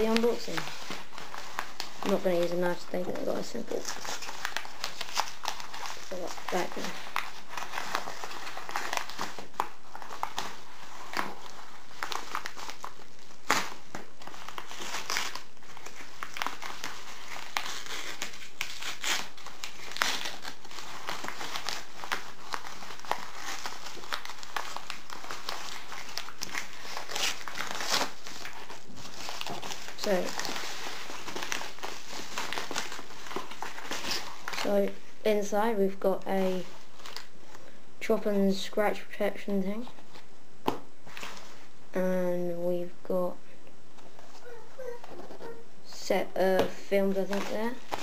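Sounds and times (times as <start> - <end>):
paper envelope crinkling and tearing: 0.0 - 34.9, 47.1 - 48.0.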